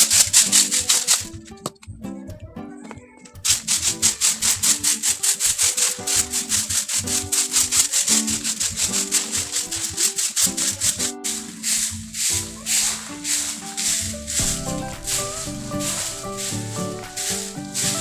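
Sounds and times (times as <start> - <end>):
melody over rattling beat: 13.1 - 18.0.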